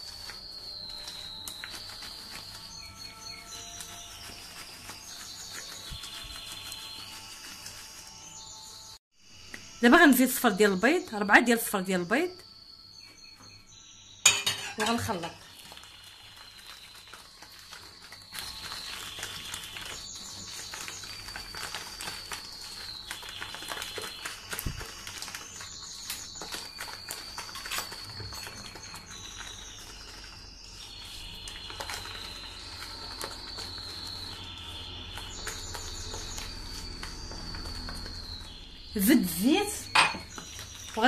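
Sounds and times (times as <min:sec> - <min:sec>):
hand squishing butter mixture: 0:00.0 - 0:08.2
bird singing whistles and trills: 0:18.3 - 0:41.0.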